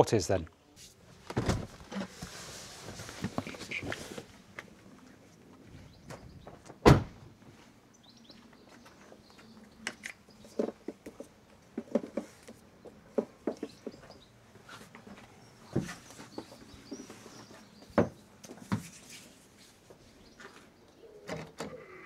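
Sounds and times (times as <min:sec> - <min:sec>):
birds chirping: 0:04.9 - 0:06.9, 0:07.6 - 0:22.0
car door shutting: 0:06.8 - 0:07.2.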